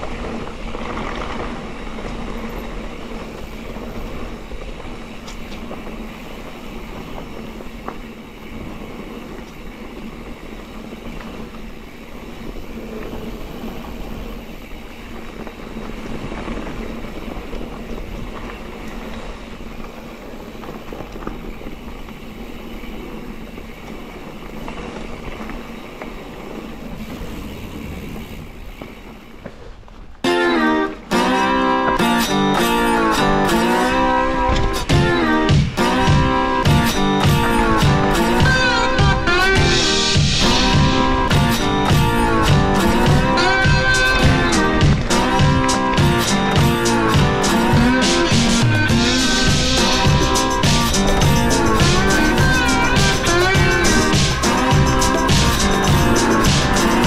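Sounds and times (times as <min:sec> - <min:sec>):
bike rattling over bumps: 0:00.0 - 0:57.0
tyres rolling on dirt: 0:00.0 - 0:57.0
wind on microphone: 0:26.3 - 0:29.1.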